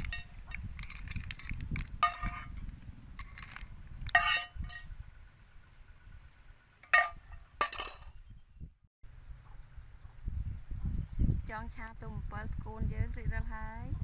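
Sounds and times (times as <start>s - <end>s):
clinks on a metal bowl: 0.0s - 2.5s, 4.1s - 4.9s, 6.8s - 8.1s.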